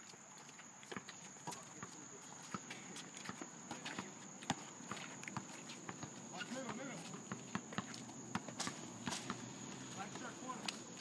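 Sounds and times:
sneaker footsteps on asphalt: 0.0s - 11.0s
basketball bouncing: 3.2s - 9.5s.

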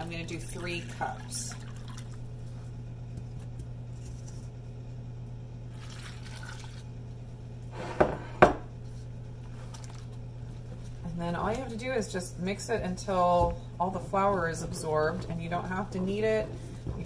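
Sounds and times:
low steady hum: 0.0s - 17.0s
water pouring into bowl: 0.5s - 2.3s, 5.7s - 6.9s.

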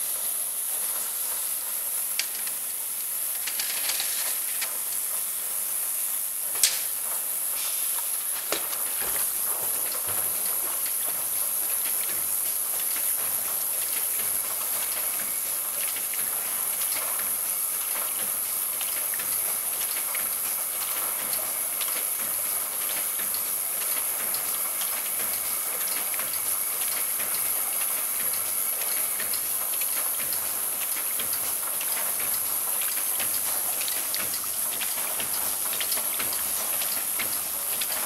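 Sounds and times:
hiss of water and air: 0.0s - 10.0s.

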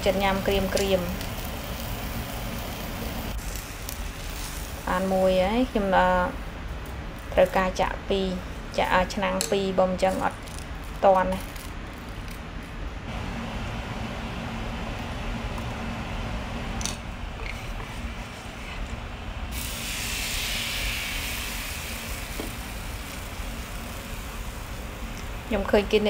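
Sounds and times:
batter sizzling in hot oil: 0.0s - 5.3s, 19.5s - 26.0s
steady hum: 0.0s - 26.0s.

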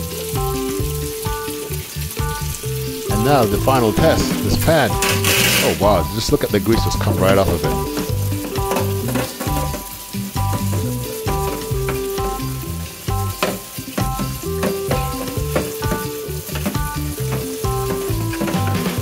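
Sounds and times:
background music: 0.0s - 19.0s
tap water splashing on metal tray: 0.0s - 19.0s
brush scrubbing tray: 2.4s - 12.5s.

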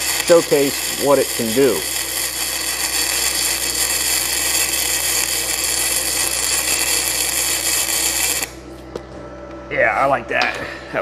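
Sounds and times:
welding arc hissing: 0.0s - 8.6s.

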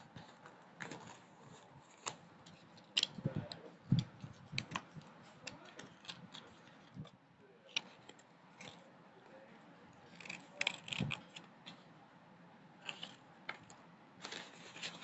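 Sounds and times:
paper rustling and crinkling: 0.0s - 7.1s, 12.8s - 15.0s.

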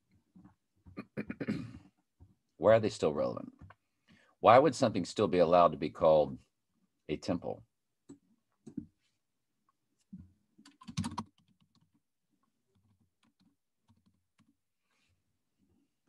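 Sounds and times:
computer keyboard keystrokes: 10.6s - 11.9s.

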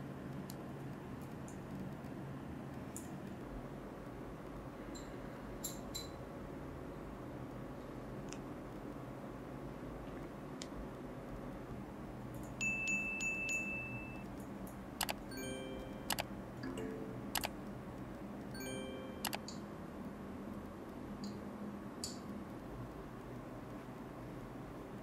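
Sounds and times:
low background hiss: 0.0s - 25.0s
metallic chiming: 12.6s - 14.2s, 15.3s - 17.2s, 18.6s - 19.4s.

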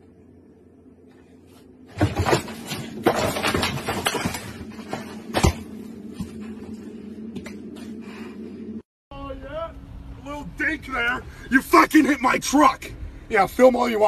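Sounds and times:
refrigerator crashing and rattling: 1.9s - 6.2s.

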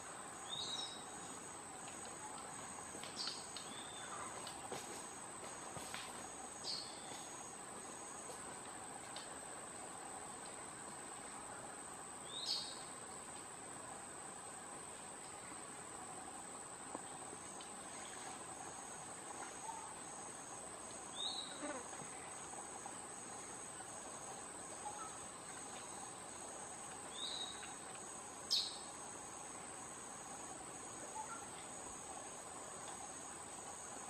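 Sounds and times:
pulsing insect chirp: 15.0s - 34.0s
insect high buzz: 17.8s - 34.0s.

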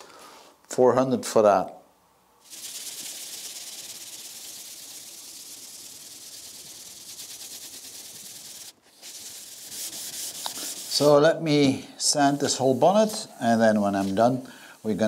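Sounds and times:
hand sanding rubbing: 2.4s - 15.0s.

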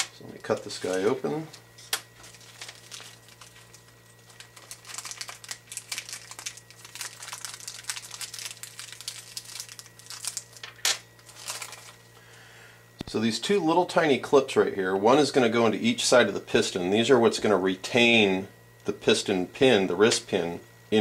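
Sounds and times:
plastic bag crinkling: 2.1s - 12.1s.

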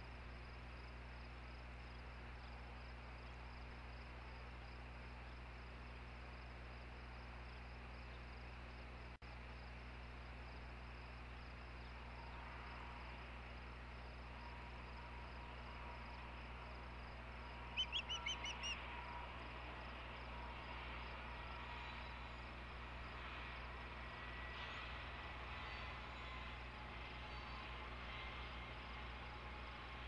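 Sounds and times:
osprey high chirps: 17.8s - 18.8s.

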